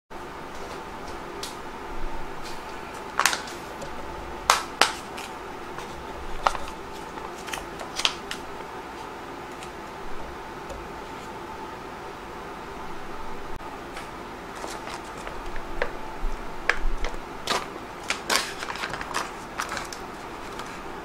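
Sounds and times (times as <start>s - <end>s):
steady low hum: 0.1s - 21.0s
plastic pouch crinkling: 3.0s - 3.6s, 4.5s - 8.5s, 14.5s - 15.7s, 17.0s - 20.8s.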